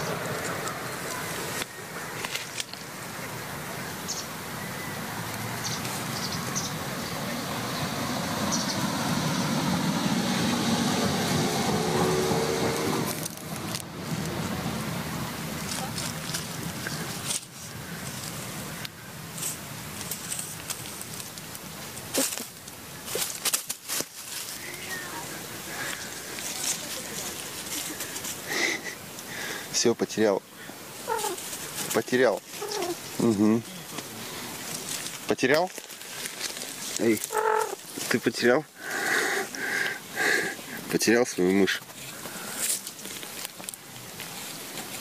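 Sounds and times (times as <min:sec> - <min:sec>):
faint rustling in undergrowth: 0:00.0 - 0:08.9, 0:12.4 - 0:45.0
twigs snapping: 0:00.4 - 0:02.9, 0:13.1 - 0:14.4, 0:15.6 - 0:24.7, 0:33.9 - 0:38.2, 0:42.2 - 0:45.0.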